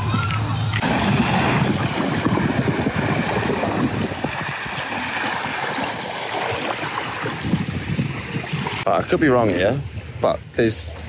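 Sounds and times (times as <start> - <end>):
waves washing onto pebble shore: 0.8 - 7.4
wind buffeting microphone: 0.8 - 10.8.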